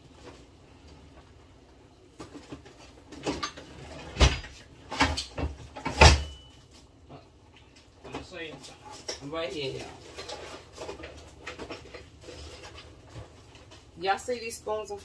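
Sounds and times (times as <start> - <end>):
household objects knocking and clattering: 2.2 - 6.5.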